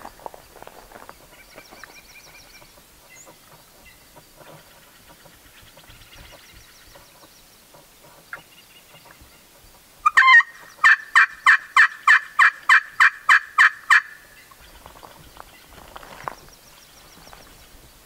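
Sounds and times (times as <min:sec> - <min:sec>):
turkey call yelps: 0:10.0 - 0:14.6.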